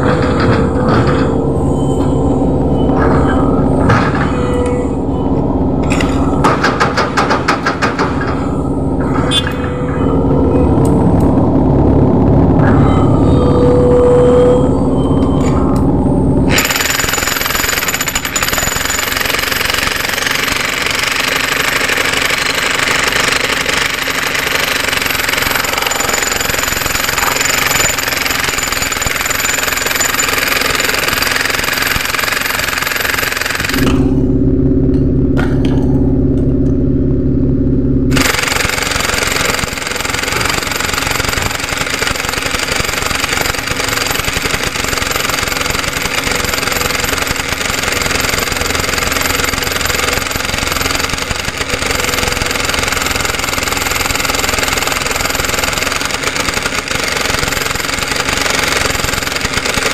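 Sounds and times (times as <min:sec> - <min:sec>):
jackhammer chiselling concrete: 0:16.5 - 0:33.8, 0:38.1 - 0:59.9.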